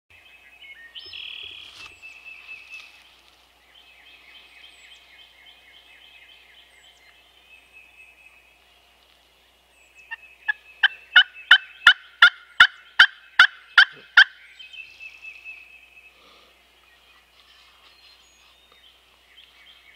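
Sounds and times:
faint songbird singing: 0.1s - 19.9s
turkey yelping: 10.1s - 14.4s.

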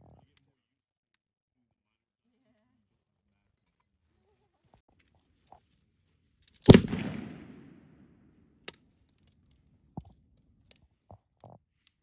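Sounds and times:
machine gun report with echo: 6.6s - 7.9s.

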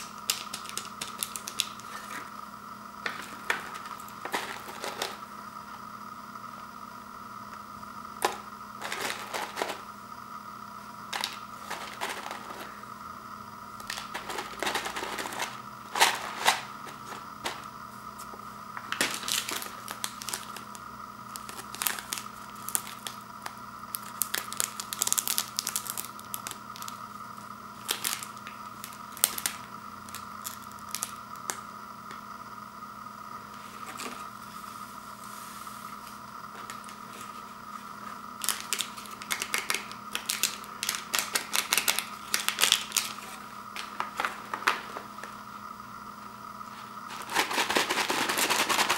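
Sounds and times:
foil packet being opened: 0.0s - 2.2s, 18.9s - 23.2s, 23.9s - 27.0s, 27.8s - 31.5s, 38.4s - 44.8s, 47.1s - 48.9s
plastic packaging crinkling: 0.0s - 2.2s, 18.9s - 27.0s, 27.8s - 31.2s, 38.4s - 44.9s, 47.1s - 48.9s
faint steady hum: 0.0s - 48.9s.

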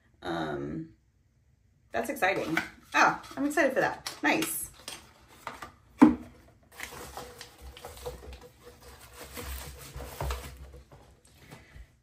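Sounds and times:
packaging rustling and clicking: 6.7s - 11.1s.

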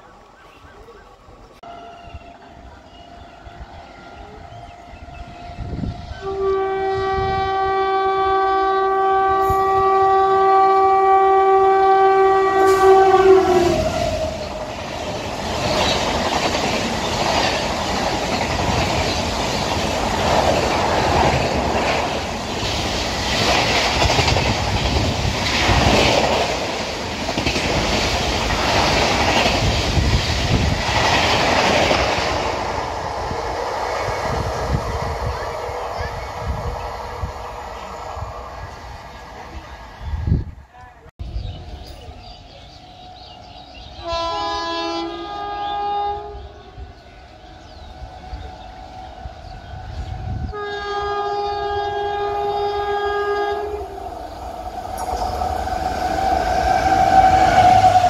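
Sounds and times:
locomotive horn blast: 1.6s - 14.8s, 44.0s - 46.9s, 50.2s - 54.1s
train coaches rushing past: 9.2s - 58.0s.

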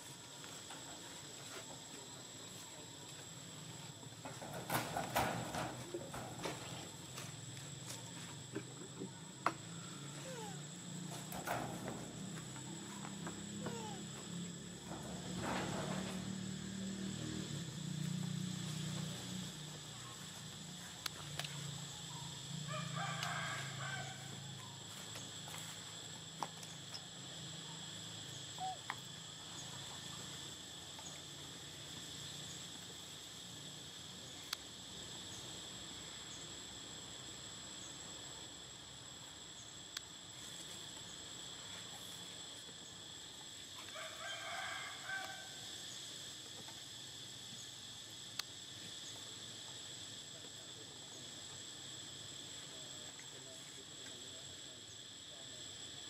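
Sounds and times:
rooster crowing: 9.5s - 10.5s, 22.6s - 24.6s, 43.9s - 45.8s.

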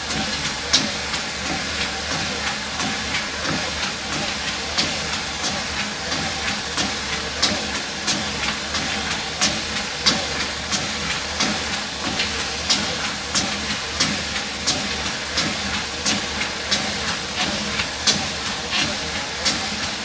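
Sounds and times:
footsteps on treadmill belt: 0.0s - 20.0s
treadmill motor hum: 0.0s - 20.0s.

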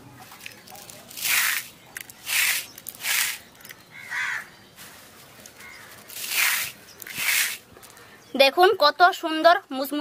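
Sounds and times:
crow cawing: 3.9s - 4.5s, 5.6s - 6.0s.

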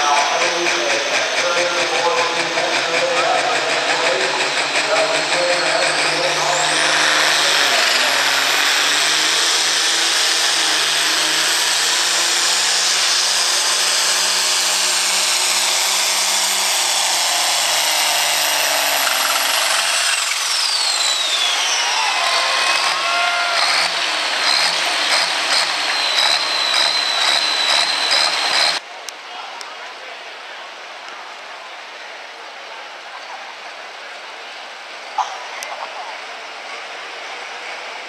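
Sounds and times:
high turbo whine: 0.0s - 28.8s
tractor diesel engine running hard: 0.0s - 28.8s, 36.0s - 38.0s.

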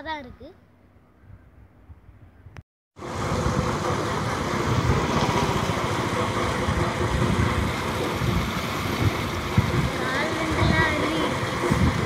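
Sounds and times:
river water rushing: 3.0s - 12.0s.

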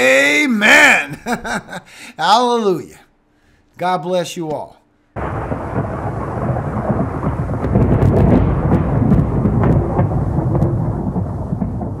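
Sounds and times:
falling rain: 5.2s - 12.0s
sharp thunder crackles: 5.2s - 12.0s
thunder rumbling: 5.2s - 12.0s.

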